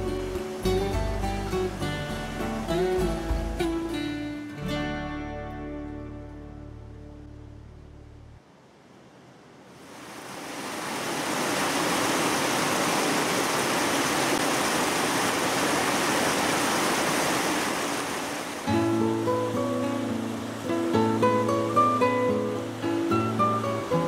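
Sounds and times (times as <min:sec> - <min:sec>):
strummed acoustic guitar music: 0:00.0 - 0:07.2, 0:18.7 - 0:24.0
water rushing over weir: 0:09.7 - 0:24.0.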